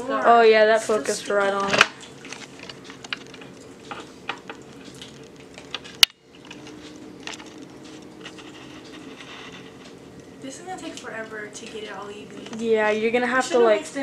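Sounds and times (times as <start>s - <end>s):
small sticky clicks: 1.6s - 12.7s.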